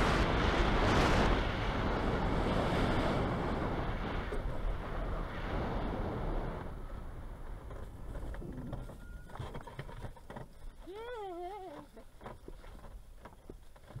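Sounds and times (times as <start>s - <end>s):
wind on microphone: 0.0s - 9.4s.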